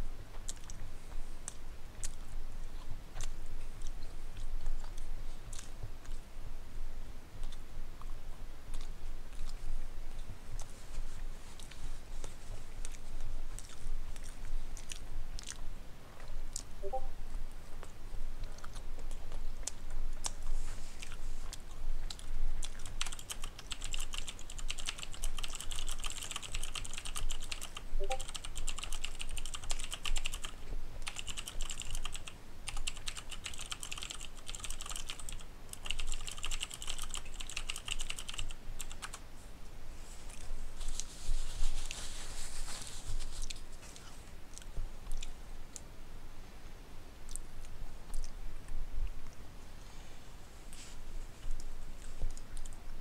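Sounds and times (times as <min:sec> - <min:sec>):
rapid keyboard typing: 0:22.6 - 0:39.2.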